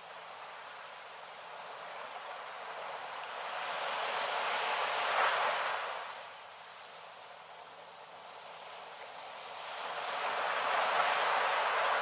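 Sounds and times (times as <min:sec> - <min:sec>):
waves washing onto sand: 0:00.0 - 0:12.0.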